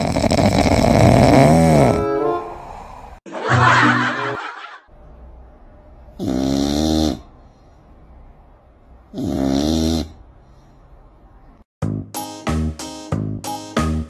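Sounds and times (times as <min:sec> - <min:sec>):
cat snoring: 0:00.0 - 0:02.0, 0:06.2 - 0:07.3, 0:09.1 - 0:10.2.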